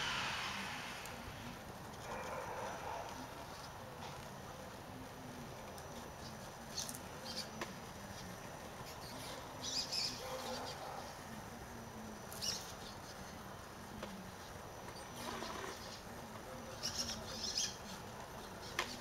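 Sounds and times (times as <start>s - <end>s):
electric motor whining: 0.0s - 1.5s.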